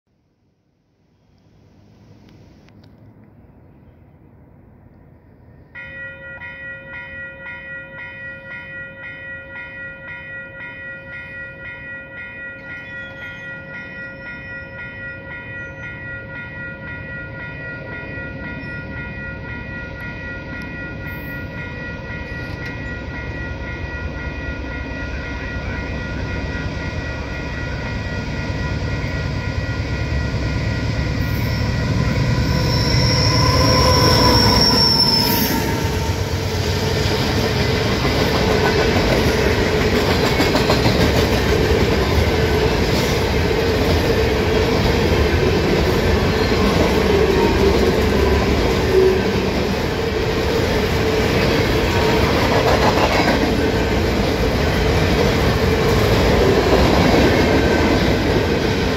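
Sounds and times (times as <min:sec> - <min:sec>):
freight train rumble: 0:01.6 - 0:58.9
railway crossing bell ringing: 0:05.6 - 0:58.9.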